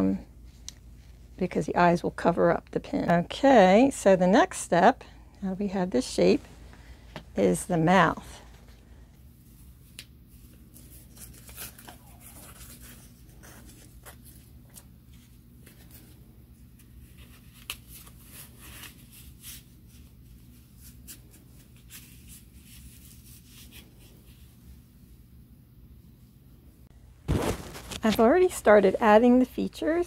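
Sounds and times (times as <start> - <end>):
steady low hum: 0.0 - 30.0
fabric rubbing and crinkling: 27.2 - 29.5.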